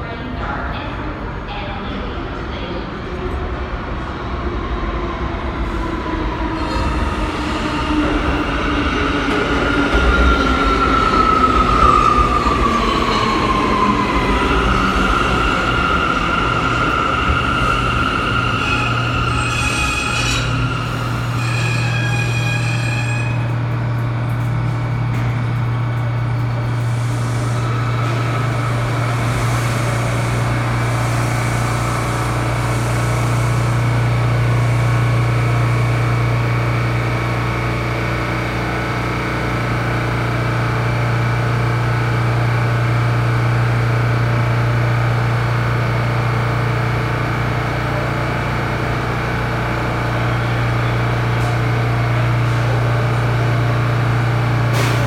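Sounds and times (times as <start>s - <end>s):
subway train equipment humming: 0.0s - 55.0s.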